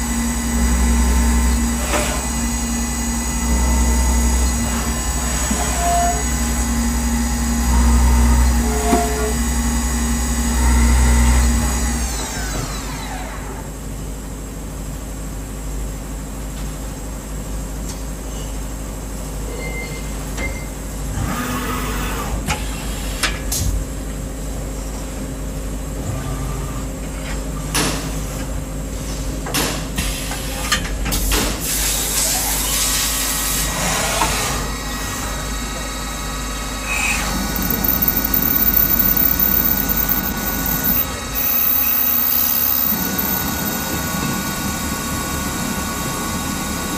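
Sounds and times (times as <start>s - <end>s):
machine humming quietly: 37.0s - 44.2s
spindle falling whine: 37.0s - 44.3s
milling machine cutting: 37.2s - 44.0s.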